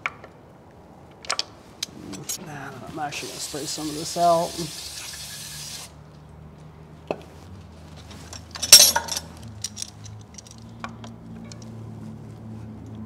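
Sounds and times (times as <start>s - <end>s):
metal hand tools clinking: 8.2s - 10.6s
pliers clattering: 8.3s - 10.6s.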